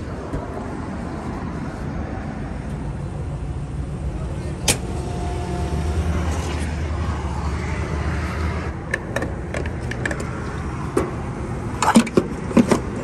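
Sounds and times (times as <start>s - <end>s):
fuel pump humming and hissing: 0.0s - 7.4s.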